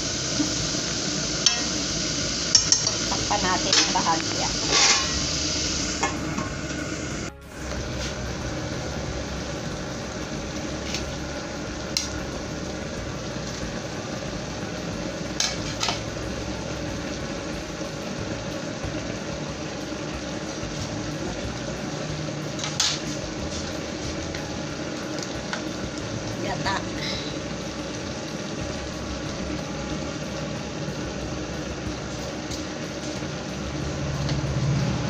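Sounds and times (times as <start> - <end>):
food sizzling in a wok: 0.0 - 35.0
clinks against a wok: 1.4 - 1.8, 2.5 - 5.2.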